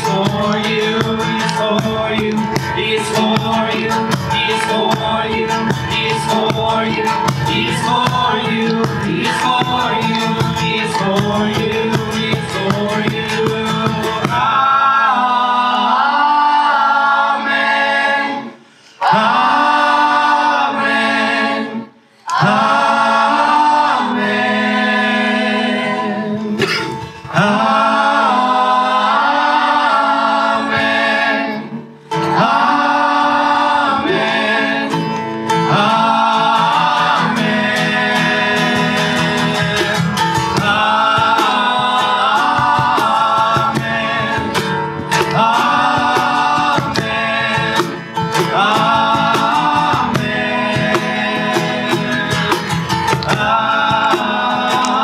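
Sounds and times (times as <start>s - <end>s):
cajon drumming: 0.0s - 15.8s, 26.6s - 29.3s, 32.4s - 55.0s
strummed acoustic guitar: 0.0s - 15.9s, 22.3s - 55.0s
people singing together: 0.0s - 55.0s.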